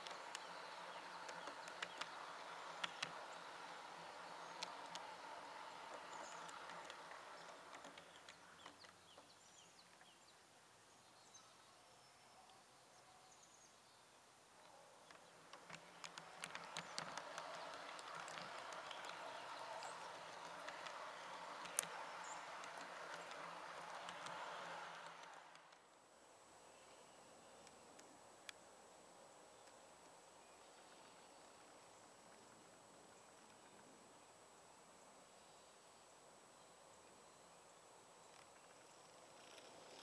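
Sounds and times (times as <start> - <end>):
model train electric motor hum: 0.0 - 8.8, 15.1 - 25.8
train wheels clicking over rail joints: 0.0 - 9.0, 15.2 - 25.8
faint birds chirping: 0.0 - 40.0.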